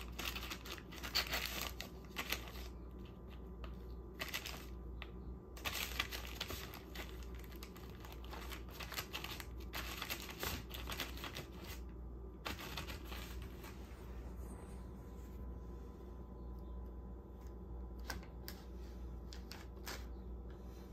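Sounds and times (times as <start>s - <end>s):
plastic shrink-wrap crinkling: 0.0s - 3.2s, 4.2s - 4.8s, 5.6s - 11.8s.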